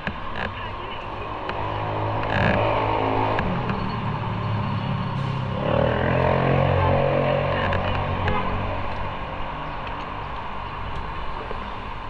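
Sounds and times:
motorcycle engine accelerating: 0:01.1 - 0:09.0.

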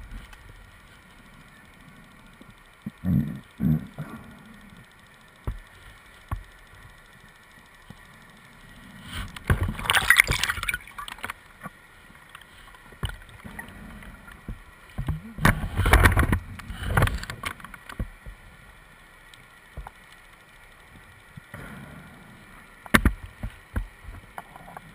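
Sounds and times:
faint clicks: 0:00.0 - 0:21.8, 0:22.5 - 0:24.9
exhaled bubbles from regulator: 0:09.1 - 0:11.3.

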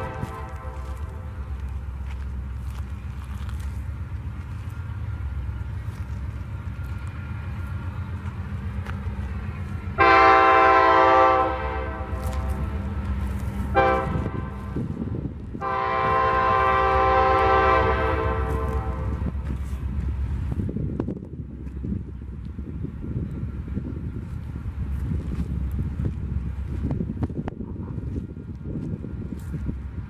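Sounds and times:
locomotive air horn blasts: 0:00.0 - 0:01.3, 0:10.0 - 0:12.8, 0:13.7 - 0:14.9, 0:15.6 - 0:19.4
diesel engine running low: 0:00.0 - 0:30.0.

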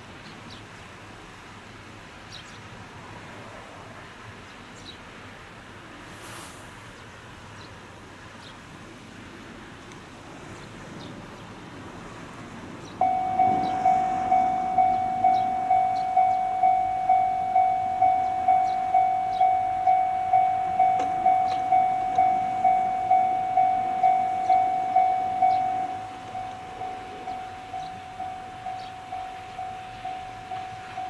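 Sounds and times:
level-crossing warning bell ringing: 0:13.0 - 0:31.0.

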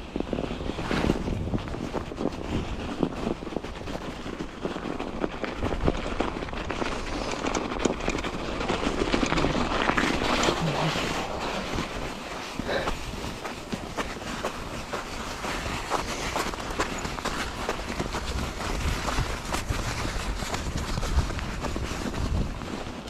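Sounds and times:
bike rattling over bumps: 0:00.0 - 0:23.0
tyres crunching through snow: 0:00.1 - 0:23.0.

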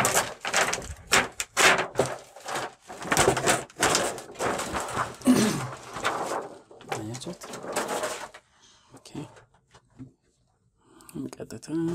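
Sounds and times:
plastic sheet crinkling: 0:00.0 - 0:08.5.

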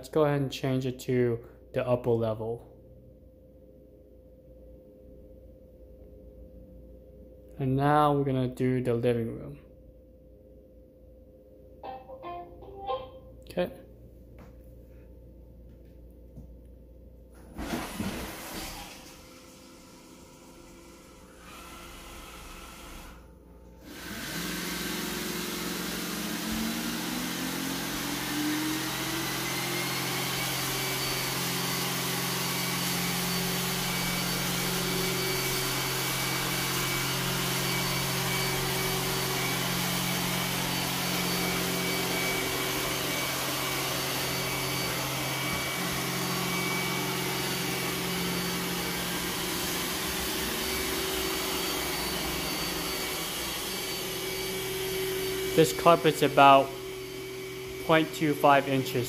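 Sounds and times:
robot vacuum fan humming: 0:17.4 - 0:59.0.

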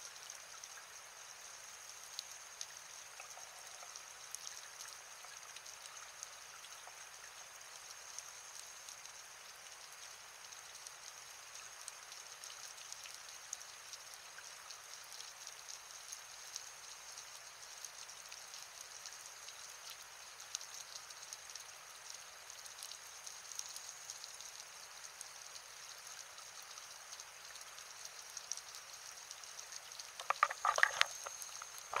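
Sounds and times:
crackle of scattered clicks: 0:02.0 - 0:09.2, 0:17.9 - 0:32.0
diver's regulator bubbles gurgling: 0:03.1 - 0:04.1, 0:30.2 - 0:32.0.

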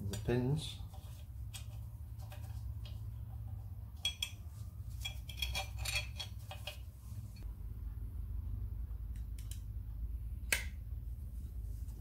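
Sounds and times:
low hum: 0:00.8 - 0:12.0
small steel parts clinking: 0:04.0 - 0:06.8.

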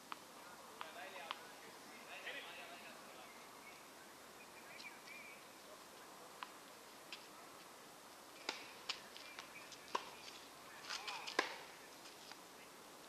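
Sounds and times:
tennis ball hits and bounces: 0:08.4 - 0:08.8, 0:10.9 - 0:11.7.

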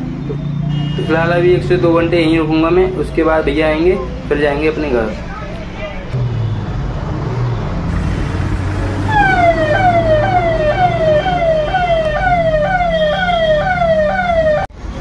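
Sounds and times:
electronic siren yelping: 0:09.1 - 0:14.7.

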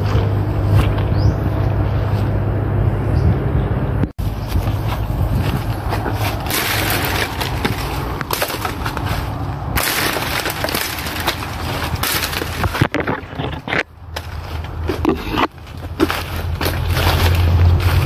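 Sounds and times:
footsteps crunching through leaves: 0:04.2 - 0:12.9, 0:14.0 - 0:18.0.

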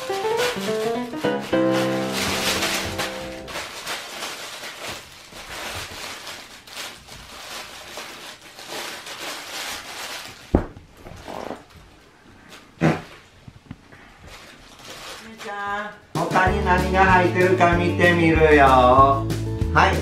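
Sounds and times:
plush toy rustling and scuffling: 0:00.1 - 0:15.7.

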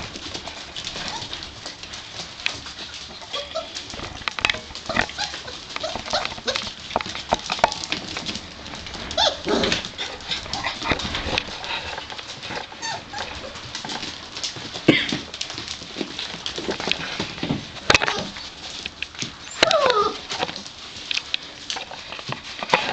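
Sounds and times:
puppies yelping and whining: 0:00.0 - 0:08.0, 0:08.8 - 0:14.2, 0:17.9 - 0:18.8, 0:19.4 - 0:20.7
claws clicking on tile floor: 0:00.0 - 0:22.9.

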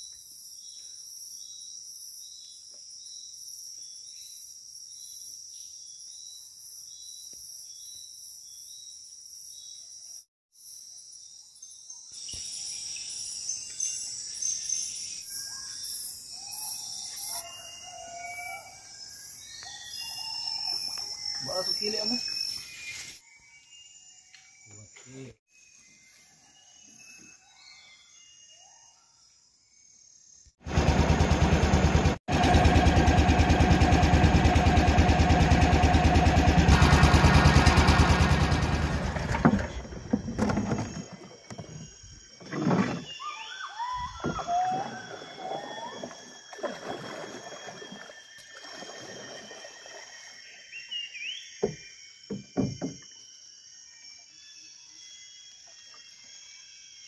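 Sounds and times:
faint insect drone: 0:00.0 - 0:32.1, 0:37.3 - 0:57.0
motorboat engine running: 0:30.6 - 0:40.9.

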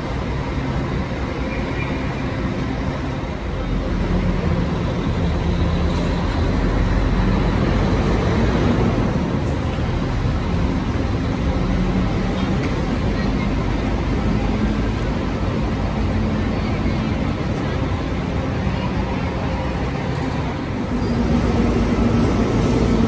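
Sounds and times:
bus engines idling: 0:00.0 - 0:23.0.

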